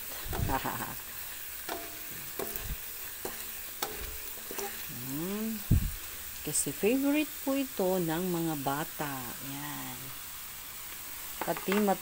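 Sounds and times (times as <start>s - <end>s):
fries sizzling in oil: 0.0s - 12.0s
spatula clinking on wok: 1.5s - 4.9s.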